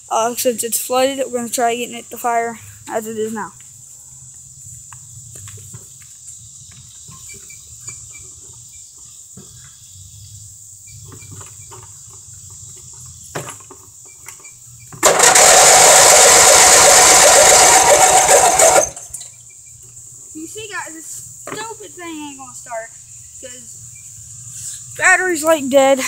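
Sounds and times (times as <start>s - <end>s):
mower engine cranking by starter: 14.9s - 19.3s.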